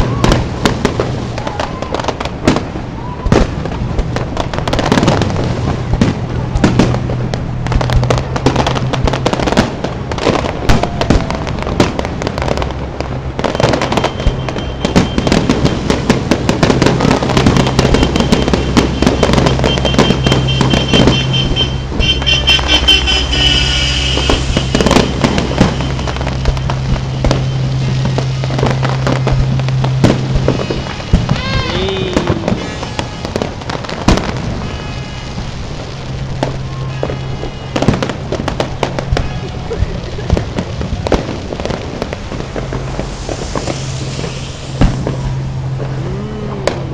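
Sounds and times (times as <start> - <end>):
firework whistles: 0.0 - 3.8, 7.8 - 46.9
firework shell bursts crackling: 0.0 - 46.9.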